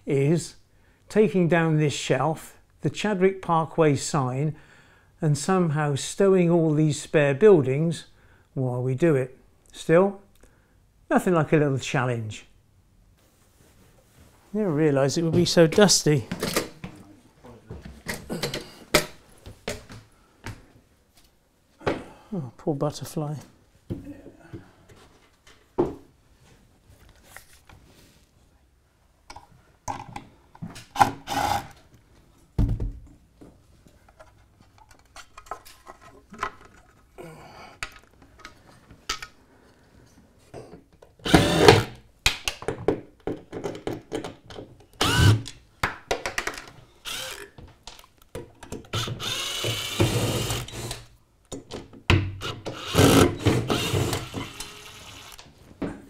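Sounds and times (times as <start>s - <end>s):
knocks and clatter of handling: 32.5s - 37.2s, 42.4s - 44.9s, 45.8s - 46.9s, 47.6s - 48.9s
cordless driver motor: 41.3s - 41.9s, 45.0s - 45.5s, 47.0s - 47.5s, 48.9s - 51.0s, 52.5s - 55.4s.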